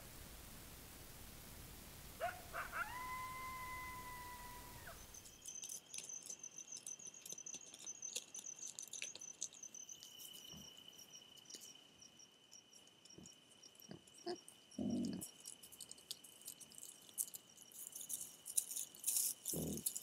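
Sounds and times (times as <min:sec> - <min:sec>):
low continuous insect buzz: 0:00.0 - 0:20.0
animal howling: 0:02.2 - 0:05.2
insects high pulsing trill: 0:02.2 - 0:20.0.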